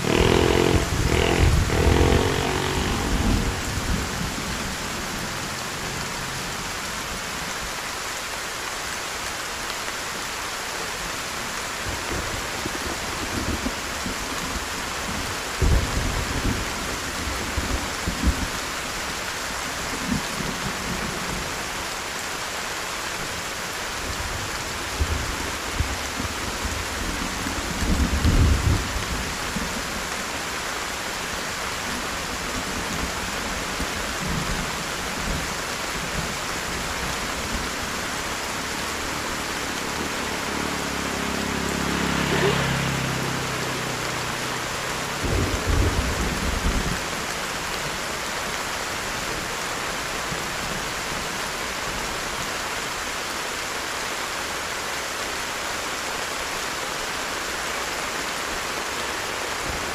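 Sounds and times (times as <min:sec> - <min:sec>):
thunder rumbling: 0:00.0 - 0:06.5
heavy rain: 0:00.0 - 0:59.9.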